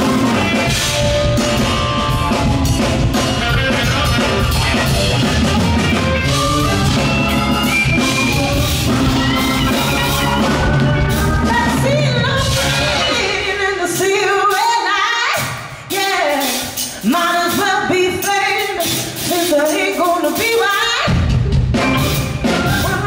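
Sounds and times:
electric guitar: 0.0s - 14.2s, 21.1s - 23.0s
drum kit: 0.0s - 23.0s.

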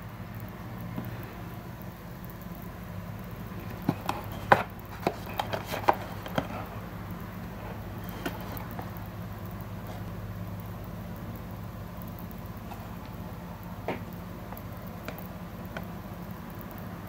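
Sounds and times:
steady low hum: 0.0s - 17.0s
light clicks and taps of plastic: 13.8s - 16.9s.

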